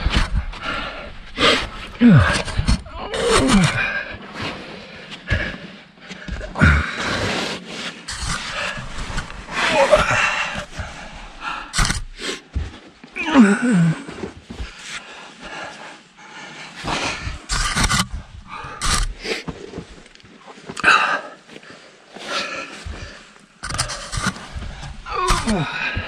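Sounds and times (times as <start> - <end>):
man breathing hard and grunting: 0.0 - 4.4
man groaning: 2.0 - 3.8, 25.1 - 26.0
jacket scraping against rock: 7.0 - 13.0, 16.8 - 20.4, 22.2 - 26.0.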